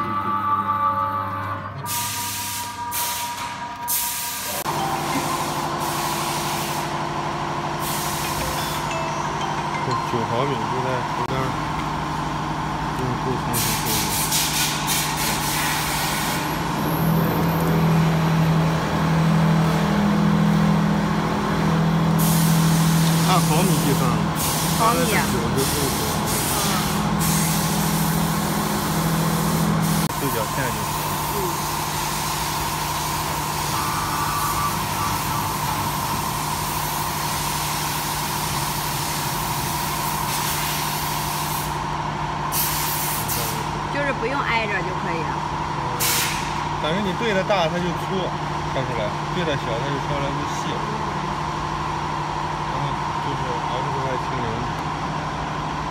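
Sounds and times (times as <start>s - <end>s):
machinery low drone: 0.0s - 14.2s, 15.9s - 40.0s.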